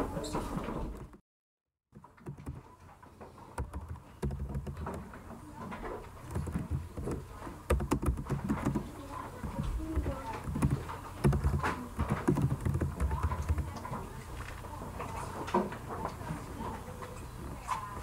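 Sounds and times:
classroom stir and thuds: 0:02.0 - 0:18.0
keyboard typing clicks: 0:02.2 - 0:02.7, 0:03.6 - 0:05.1, 0:06.3 - 0:13.9.

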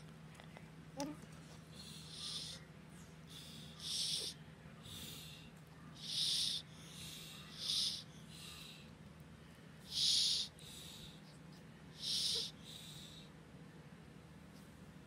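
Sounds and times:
faint low hum: 0:00.0 - 0:15.0
parrot breathy hisses: 0:01.8 - 0:02.6, 0:03.3 - 0:08.9, 0:09.9 - 0:11.2, 0:12.0 - 0:13.3.

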